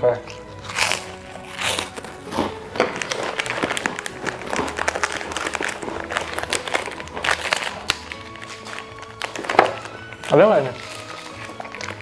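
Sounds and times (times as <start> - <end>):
background music: 0.0 - 12.0
plastic packets crinkling: 0.3 - 12.0
scissors cutting plastic: 0.3 - 12.0.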